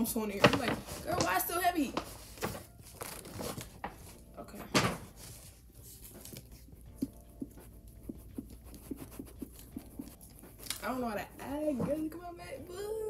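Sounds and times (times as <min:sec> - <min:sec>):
paper bag rustling: 0:00.0 - 0:04.3, 0:05.0 - 0:06.7.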